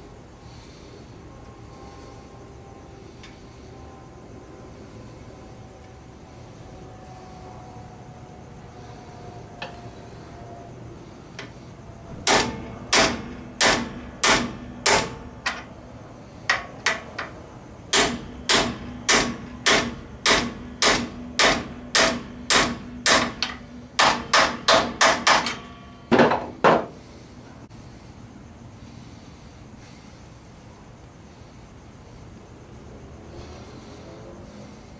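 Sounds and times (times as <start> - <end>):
hammer tapping metal: 12.2 - 15.7, 16.5 - 26.9.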